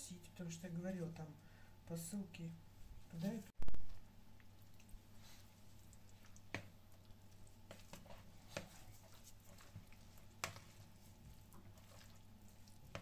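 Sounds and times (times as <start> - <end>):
low steady hum: 0.0 - 13.0
fork stirring thick filling: 4.6 - 13.0.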